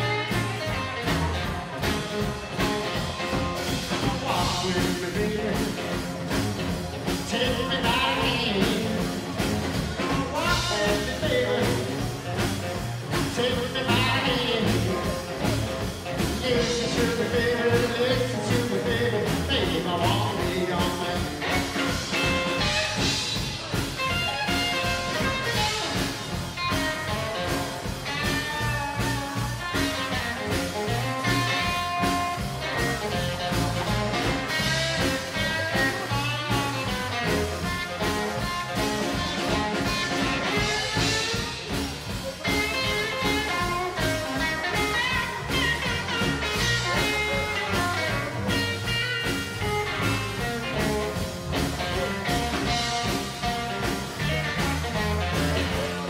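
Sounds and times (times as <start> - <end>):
drums: 0.0 - 56.0
electric guitar: 0.0 - 56.0.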